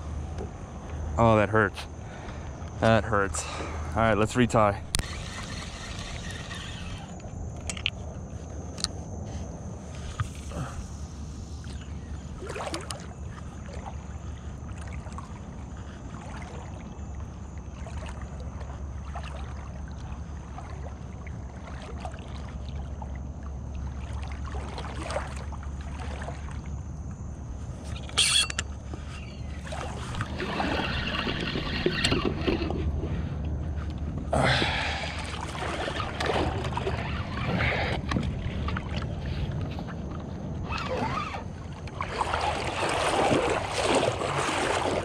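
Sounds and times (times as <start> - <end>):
water lapping: 1.9 - 7.4, 8.2 - 45.0
wind rumble on microphone: 28.7 - 45.0.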